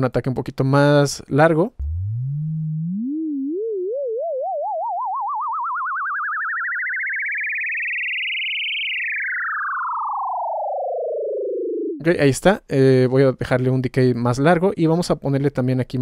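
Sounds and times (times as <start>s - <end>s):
synthesizer sine tone sweep: 1.8s - 12.0s.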